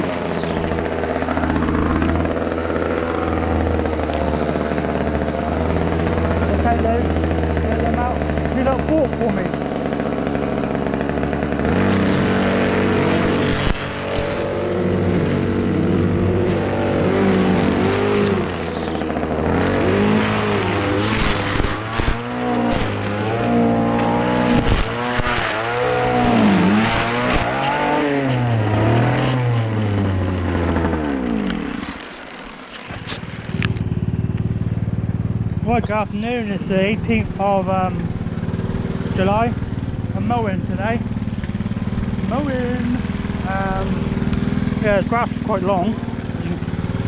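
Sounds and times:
trimmer line whipping through grass: 0.0 - 4.0, 10.2 - 29.4, 30.5 - 33.8
string trimmer motor running: 0.0 - 47.0.

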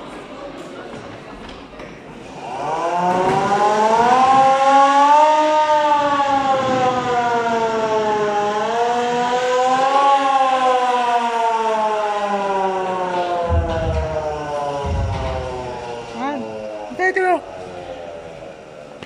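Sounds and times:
siren wailing: 2.3 - 17.2.

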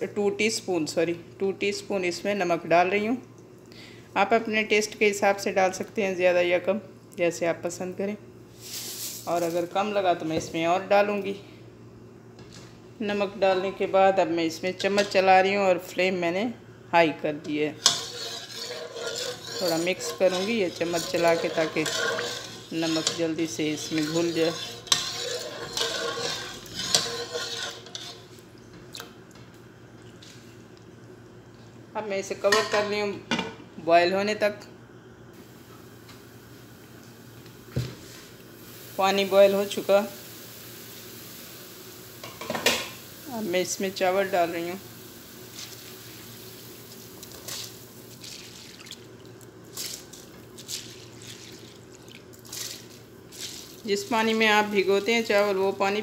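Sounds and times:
metal spoon stirring water in pot: 17.8 - 28.3
water boiling in a pot: 17.8 - 28.3, 35.5 - 56.0
faint steady hiss: 35.2 - 49.6.

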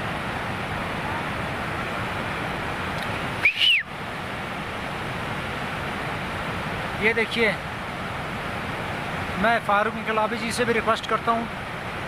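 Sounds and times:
stream rushing: 0.0 - 12.0
high whistle: 3.4 - 3.9.

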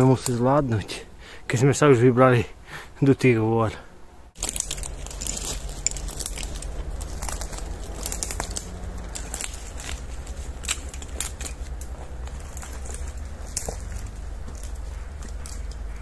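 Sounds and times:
low rumble: 4.4 - 16.0
twigs and leaves crackling: 4.4 - 16.0.

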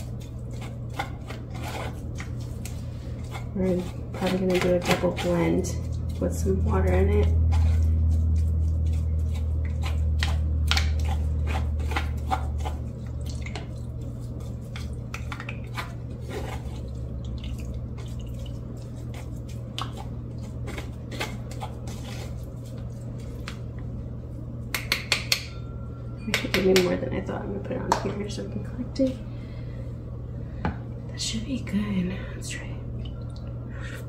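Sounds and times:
spoon scraping metal strainer: 0.0 - 10.0
wet squishes: 0.0 - 23.9
low steady hum: 0.0 - 34.0.

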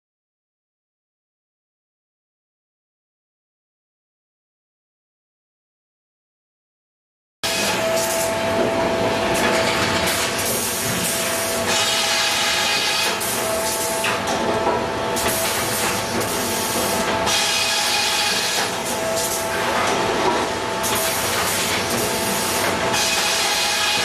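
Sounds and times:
sawbench mechanical din: 15.2 - 24.0.

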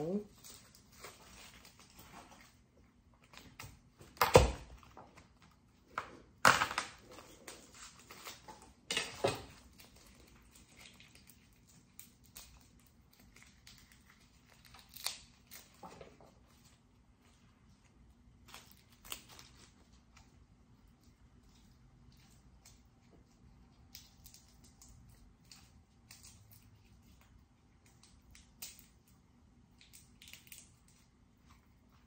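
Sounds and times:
garlic cloves cracking: 6.4 - 16.0, 18.4 - 19.7, 22.2 - 31.1
garlic skins crackling and tearing: 7.2 - 16.8, 18.3 - 20.3.

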